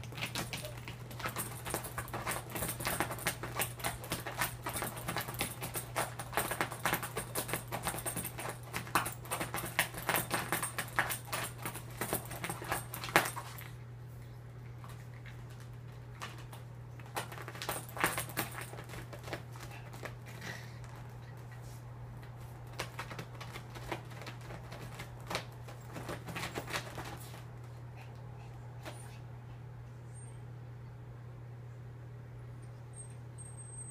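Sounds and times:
zippers rattling: 0.0 - 13.6
dog scratching at fabric: 0.0 - 13.7, 22.5 - 27.6.

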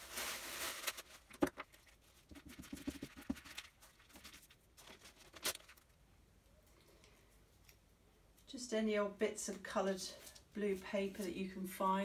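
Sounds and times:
tissue paper rustling: 0.0 - 5.8.

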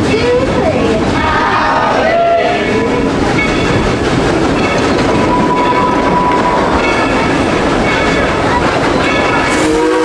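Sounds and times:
voices calling out: 0.0 - 3.9
steam train rolling: 0.0 - 10.0.

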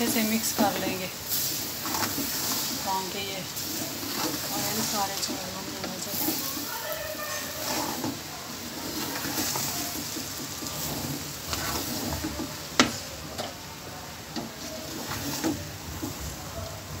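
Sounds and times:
light sizzle: 0.0 - 17.0
wooden spoon stirring rice: 0.0 - 17.0
spoon scraping pot: 0.2 - 13.0.

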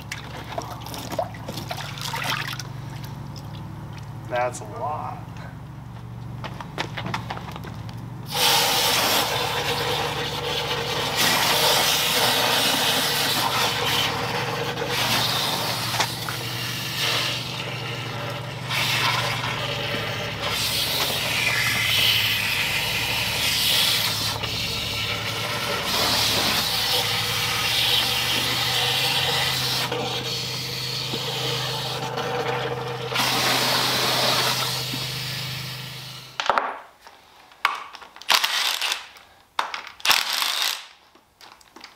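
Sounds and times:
low hum: 0.0 - 36.4.

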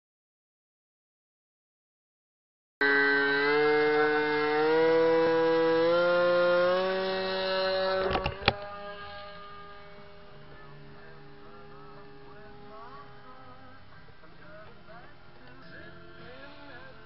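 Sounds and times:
electric motor and propeller whine: 2.8 - 17.0.

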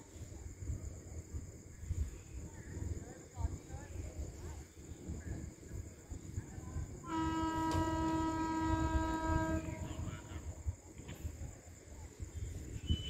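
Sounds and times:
locomotive horn blast: 7.0 - 10.2.

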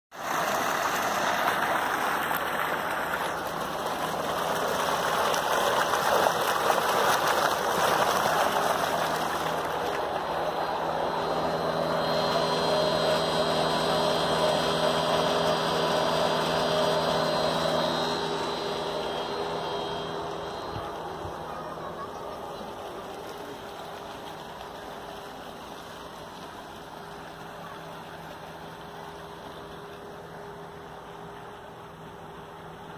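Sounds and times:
water pouring into tank: 0.2 - 10.4
machine hum: 0.2 - 32.9.

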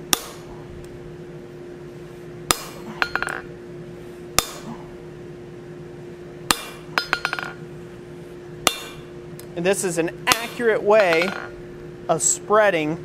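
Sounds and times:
hammer striking hot steel: 0.0 - 0.5, 2.5 - 3.5, 4.3 - 4.8, 6.5 - 7.6, 8.6 - 9.2, 10.3 - 11.6
steady low hum: 0.0 - 13.0.

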